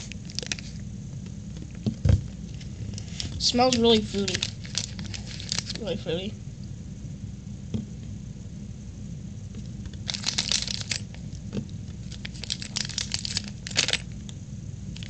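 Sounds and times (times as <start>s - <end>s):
plastic pouch crinkling: 0.0s - 0.8s, 2.6s - 5.9s, 10.0s - 11.3s, 12.0s - 14.1s.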